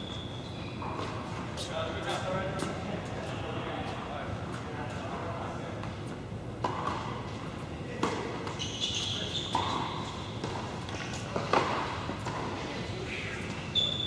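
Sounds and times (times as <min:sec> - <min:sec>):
shoe squeaks: 0:00.0 - 0:01.7, 0:08.2 - 0:11.8, 0:12.6 - 0:14.0
tennis balls bouncing and hit: 0:00.7 - 0:02.8, 0:05.8 - 0:14.0.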